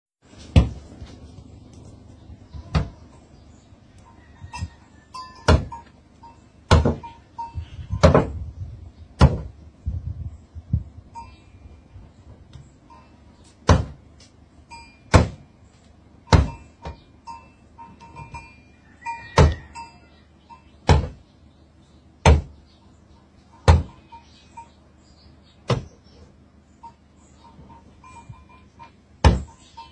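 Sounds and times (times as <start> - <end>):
goat butting car door: 5.5 - 5.8, 6.7 - 7.1, 8.0 - 8.4, 9.2 - 9.6, 13.6 - 14.0, 15.1 - 15.5, 16.3 - 17.0, 20.9 - 21.2, 22.2 - 22.6, 23.6 - 24.0, 25.7 - 26.0, 29.2 - 29.6.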